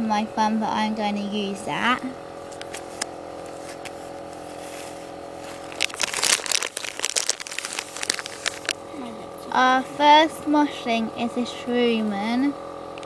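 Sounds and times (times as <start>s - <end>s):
steady low hum: 0.0s - 13.0s
wrapper crinkling and rustling: 2.6s - 8.8s.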